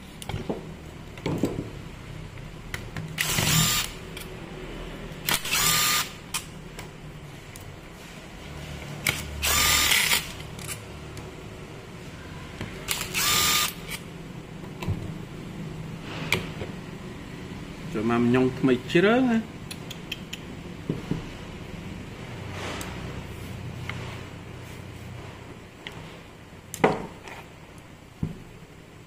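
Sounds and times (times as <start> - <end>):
cordless impact driver bursts: 3.2 - 4.0, 5.3 - 6.2, 9.1 - 10.3, 12.9 - 13.8
impact driver whine: 3.2 - 4.0, 5.3 - 6.2, 9.2 - 10.3, 12.9 - 14.0.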